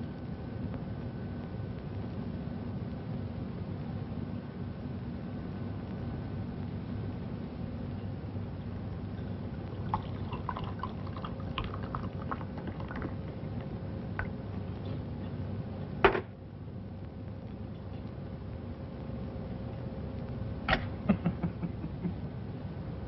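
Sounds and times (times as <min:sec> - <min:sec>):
glass clinking: 0:09.2 - 0:13.1
wine pouring into a glass: 0:09.5 - 0:13.6.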